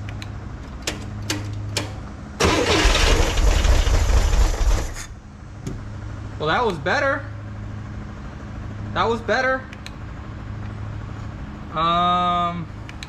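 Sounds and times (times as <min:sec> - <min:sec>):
car engine starting and dying: 0:01.8 - 0:05.2.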